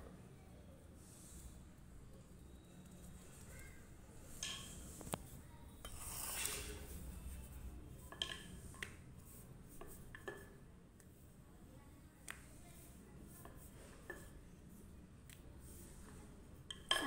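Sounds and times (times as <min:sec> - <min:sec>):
rolling pin rubbing dough: 0:05.8 - 0:07.7.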